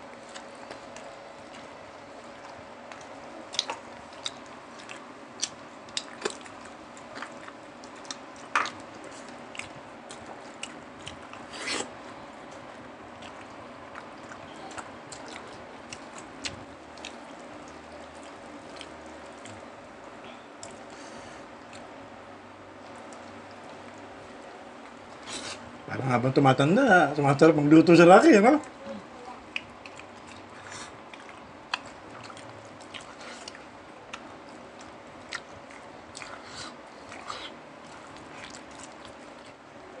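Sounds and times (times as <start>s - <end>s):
crunchy clicks of eating: 0.0s - 11.5s, 12.5s - 19.7s, 20.6s - 21.0s, 29.4s - 39.6s
chewing and lip smacks: 0.0s - 19.8s, 20.6s - 21.0s, 21.6s - 22.0s, 22.8s - 25.6s, 29.4s - 39.7s
slurping: 11.4s - 12.0s.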